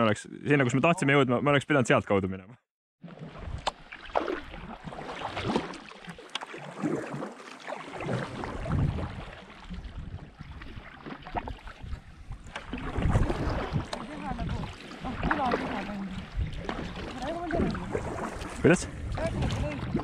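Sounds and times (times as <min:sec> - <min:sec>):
paddle splashing in water: 0:03.0 - 0:20.0
water swishing past hull: 0:03.0 - 0:20.0.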